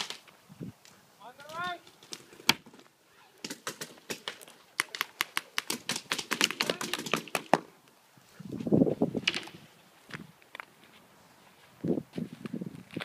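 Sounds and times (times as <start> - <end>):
paintball markers firing: 3.4 - 7.7.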